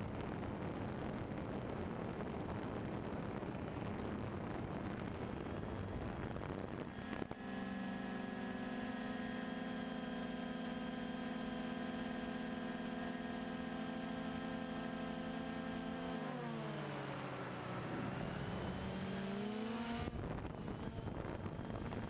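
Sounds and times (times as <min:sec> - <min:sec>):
drone motors whining: 0:13.1 - 0:22.0.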